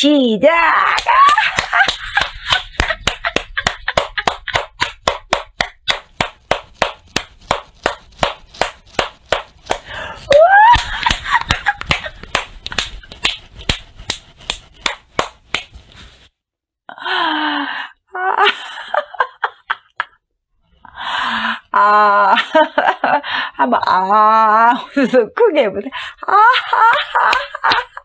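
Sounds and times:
woman laughing: 0.8 - 5.0, 9.9 - 13.0, 18.2 - 20.1, 26.2 - 28.0
hands clapping: 0.9 - 15.9, 27.2 - 27.9.

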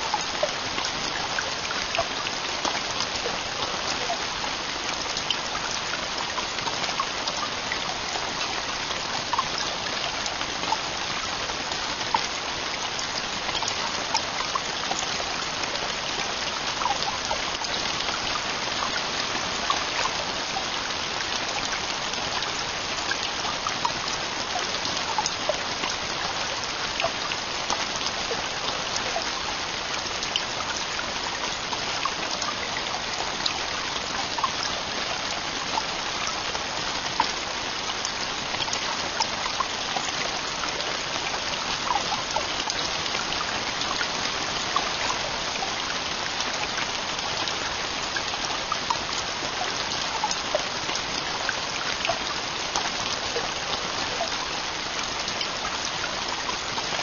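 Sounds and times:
heavy rain on a tent roof: 0.0 - 57.0.

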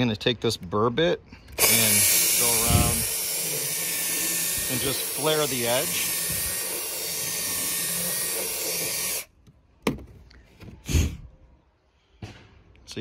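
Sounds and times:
drill grinding fiberglass: 1.6 - 9.3.

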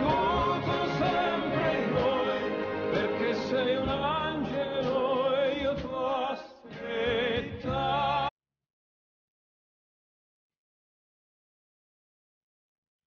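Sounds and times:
music with singing voice: 0.0 - 8.3.

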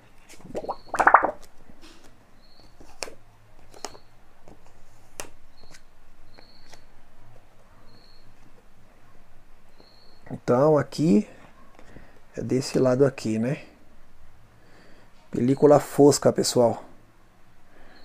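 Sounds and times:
faint high-pitched chirps: 0.6 - 1.3, 7.7 - 8.4, 9.7 - 10.4.

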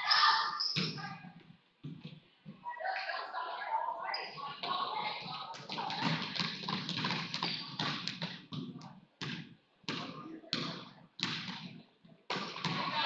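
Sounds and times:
murmur of crowd: 2.4 - 6.7
basketball bouncing on wooden floor: 5.7 - 12.9.

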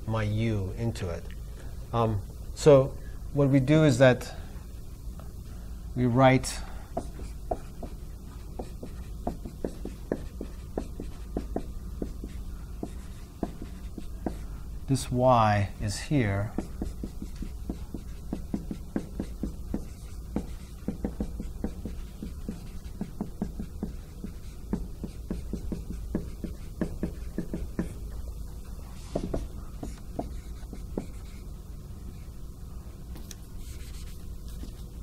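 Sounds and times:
marker writing on whiteboard: 7.0 - 14.5, 16.4 - 28.0, 29.0 - 31.5, 33.6 - 34.9.

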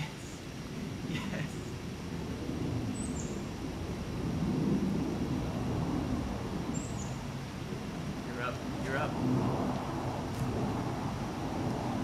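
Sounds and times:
low rumbling background noise: 0.0 - 12.0
bird chirps: 6.7 - 7.3.

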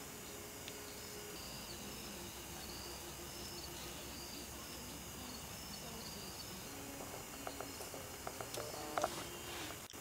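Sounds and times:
insect trilling: 0.0 - 9.9
faint low hum: 0.0 - 10.0.

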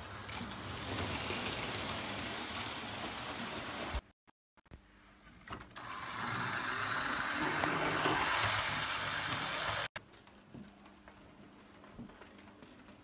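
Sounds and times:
model train whirring on track: 5.8 - 9.9.

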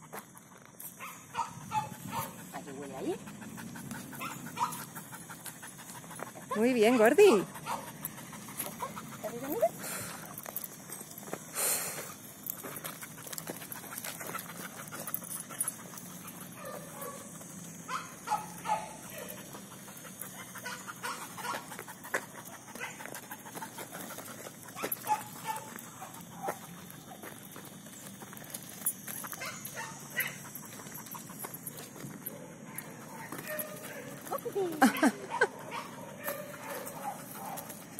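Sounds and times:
steps and paws on gravel: 0.0 - 37.9.

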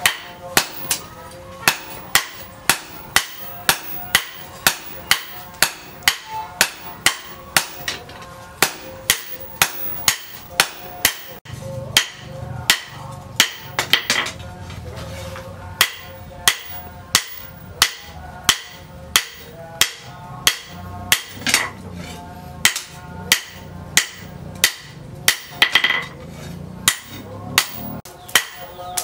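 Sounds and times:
hammer ringing on anvil: 0.0 - 14.4.

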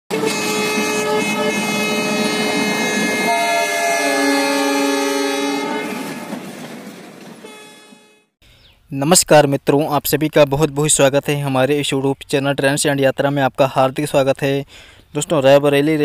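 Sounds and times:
locomotive horn blast: 0.1 - 6.6, 7.4 - 8.4
train rolling past: 0.1 - 8.3.

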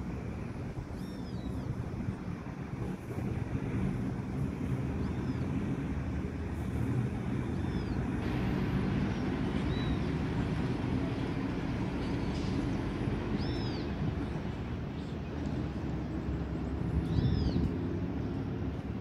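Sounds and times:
distant jet airliner rumble: 0.0 - 19.0
high bird chirps: 13.4 - 14.0.

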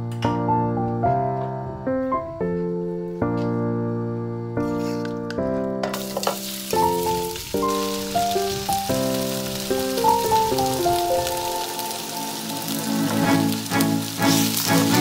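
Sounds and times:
piano background music: 0.0 - 15.0
chicken sizzling in hot oil: 5.9 - 15.0.

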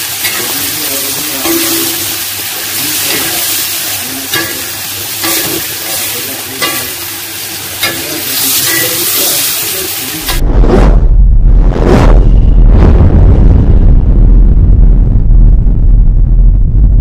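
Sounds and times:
metal spatula scraping wok: 0.0 - 10.4
mushrooms sizzling in wok: 0.0 - 10.4.

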